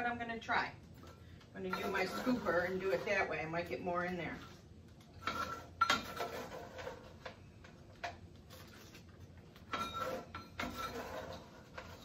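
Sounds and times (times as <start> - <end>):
scoop scraping against a pot: 1.6 - 3.4, 5.2 - 7.2, 9.8 - 12.0.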